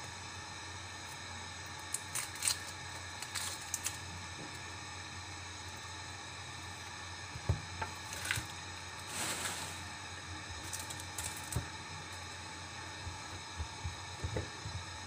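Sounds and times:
low hum and hiss: 0:00.0 - 0:15.0
onion skin rustling and crackling: 0:01.1 - 0:04.3, 0:07.8 - 0:12.3.

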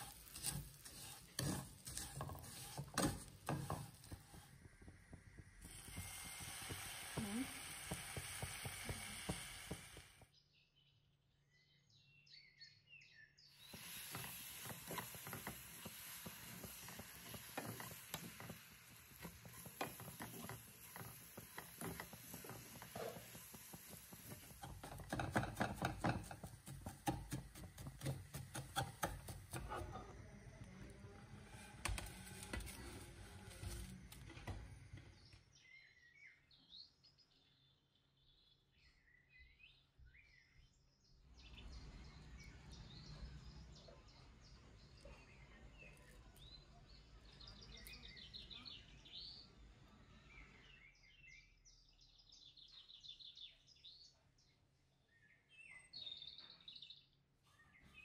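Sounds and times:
crackling sizzle in a pan: 0:00.0 - 0:10.3, 0:13.5 - 0:35.1.

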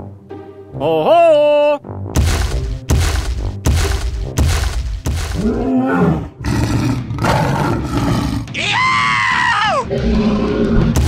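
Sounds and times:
heavy thuds: 0:02.2 - 0:05.6
monster high wavering roar: 0:05.4 - 0:08.5
monster low growl: 0:05.4 - 0:08.5, 0:09.8 - 0:11.0.

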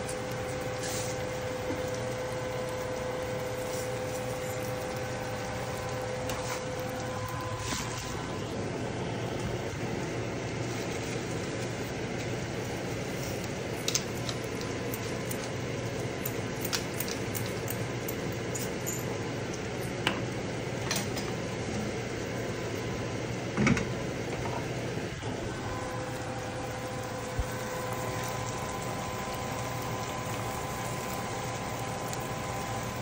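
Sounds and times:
fish and vegetables sizzling in a pan: 0:00.0 - 0:08.8, 0:25.4 - 0:33.0.

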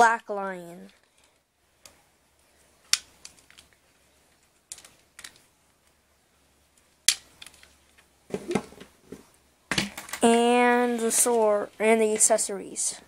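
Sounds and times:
plastic toy clicks and knocks: 0:04.7 - 0:05.4, 0:07.1 - 0:07.7
toy clattering on wooden table: 0:04.7 - 0:05.4.

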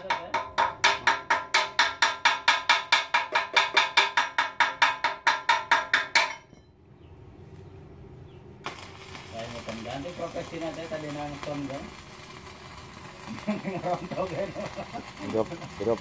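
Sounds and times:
rapid metal-on-metal strikes: 0:00.0 - 0:06.6.

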